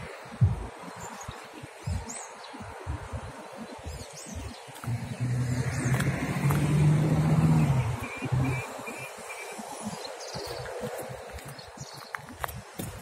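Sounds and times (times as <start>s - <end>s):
small birds chirping: 0.0s - 13.0s
car passing by: 4.8s - 11.4s.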